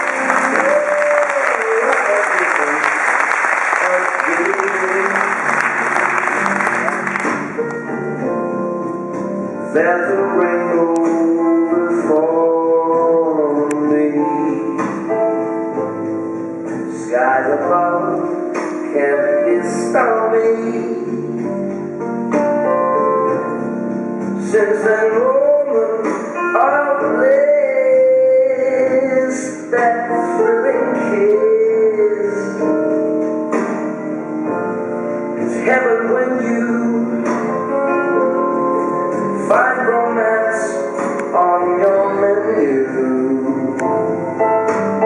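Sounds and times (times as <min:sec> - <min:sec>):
piano accompaniment: 0:00.0 - 0:45.0
person singing slow melody: 0:09.7 - 0:15.1, 0:24.4 - 0:33.0, 0:39.4 - 0:44.3.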